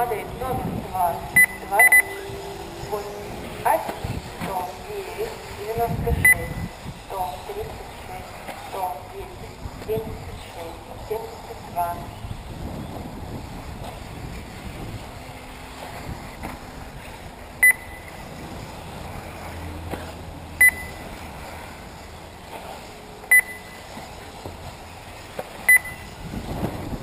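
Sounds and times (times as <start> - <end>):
short electronic beeps: 1.3 - 2.5, 6.2 - 6.7, 17.6 - 18.3, 20.6 - 21.0, 23.3 - 23.9, 25.7 - 26.1.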